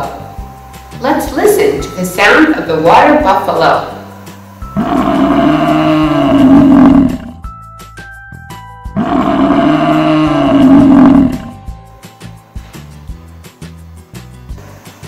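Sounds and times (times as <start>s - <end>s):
water buffalo mooing: 4.6s - 7.5s, 8.9s - 11.6s.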